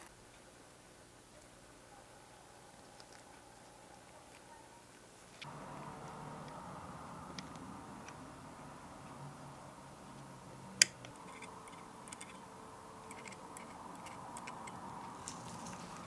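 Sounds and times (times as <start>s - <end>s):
metal tweezers clicking on plastic: 10.8s - 12.4s, 13.0s - 14.9s.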